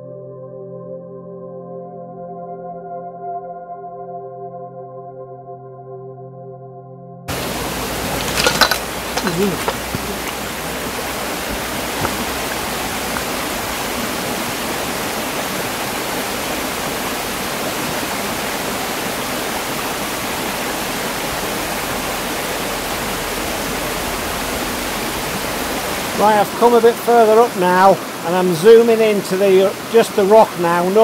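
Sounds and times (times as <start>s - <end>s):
stream cascading over rocks: 7.3s - 31.0s.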